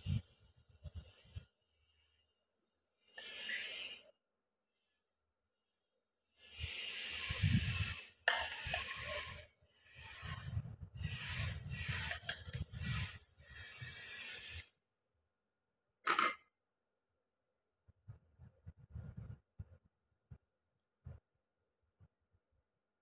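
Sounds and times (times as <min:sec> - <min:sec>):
metal spoon scraping: 0:08.3 - 0:09.4, 0:11.2 - 0:13.2.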